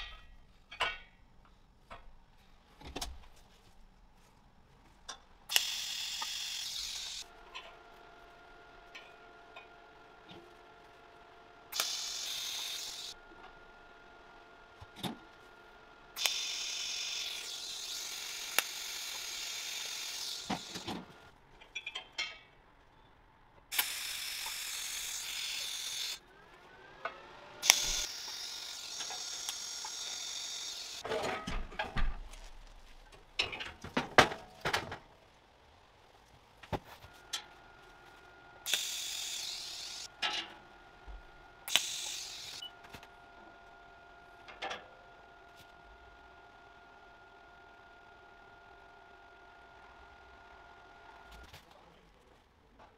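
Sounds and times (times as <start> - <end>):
welding arc hissing: 5.5 - 7.3, 11.7 - 13.2, 16.2 - 21.3, 23.7 - 26.2, 27.6 - 31.0, 38.6 - 40.1, 41.6 - 42.7.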